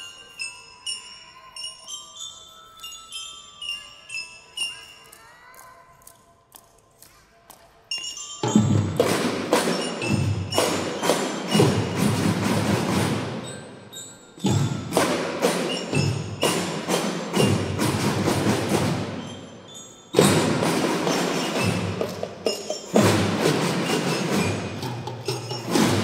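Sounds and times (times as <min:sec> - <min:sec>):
glockenspiel bell tones: 0:00.0 - 0:06.0, 0:07.9 - 0:26.0
drum band playing: 0:08.4 - 0:13.6, 0:14.4 - 0:19.5, 0:20.1 - 0:26.0
bass and snare drums: 0:20.2 - 0:22.2.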